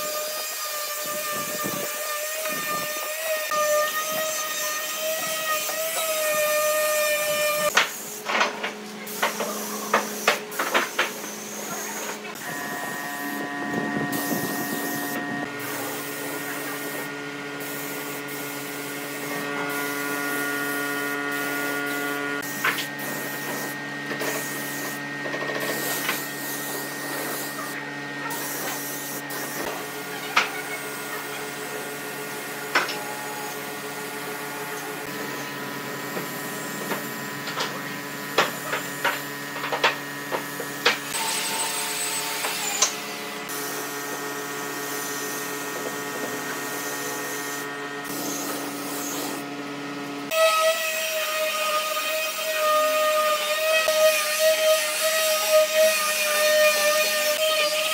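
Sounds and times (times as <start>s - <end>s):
machine hum: 11.3s - 50.3s.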